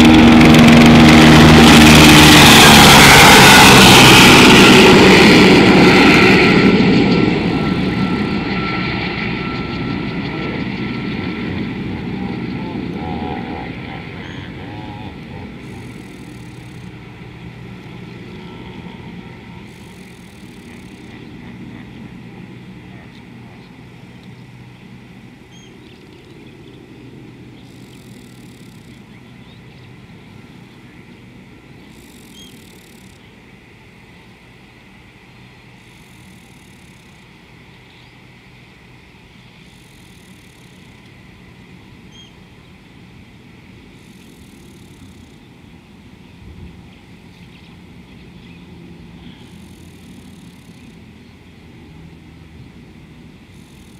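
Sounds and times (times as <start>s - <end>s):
distant engine humming: 0.0s - 53.9s
faint chirps: 30.6s - 33.3s.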